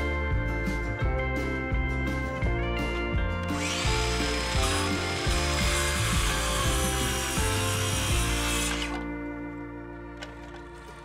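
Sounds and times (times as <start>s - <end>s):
background music: 0.0s - 11.0s
power tool running: 3.4s - 9.1s.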